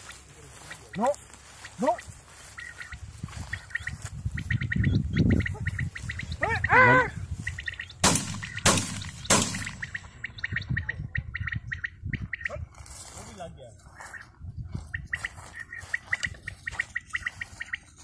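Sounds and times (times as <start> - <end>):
birds chirping: 0.0 - 12.6, 13.6 - 18.0
sharp cracks: 8.0 - 10.3.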